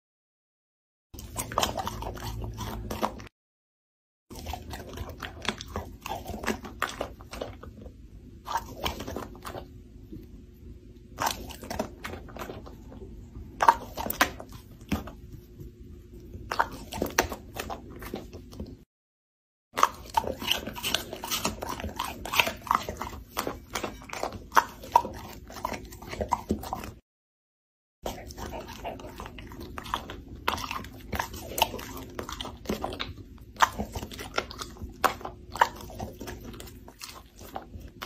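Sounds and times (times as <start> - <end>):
low steady hum: 4.4 - 18.8.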